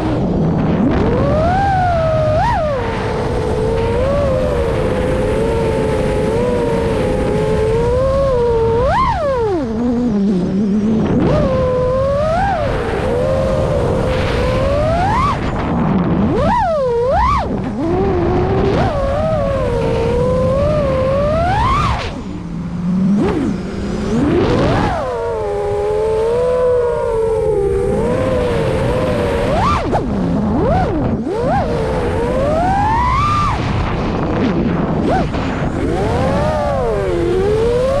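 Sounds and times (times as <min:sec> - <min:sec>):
drone motors whining: 0:00.0 - 0:38.0
wind rushing: 0:10.3 - 0:26.6.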